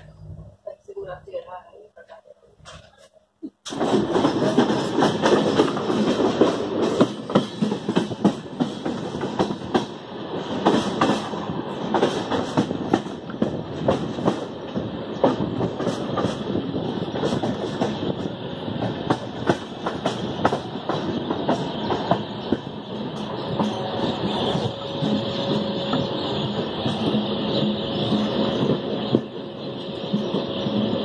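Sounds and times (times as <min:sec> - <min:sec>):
train wheels rolling rumble: 0:03.6 - 0:31.0
wheels clattering over rail joints: 0:03.7 - 0:16.4.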